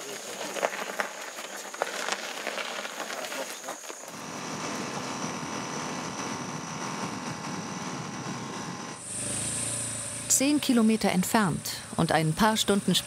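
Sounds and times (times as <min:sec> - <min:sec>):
high insect trill: 0:00.0 - 0:13.0
quad bike engine running: 0:04.1 - 0:13.0.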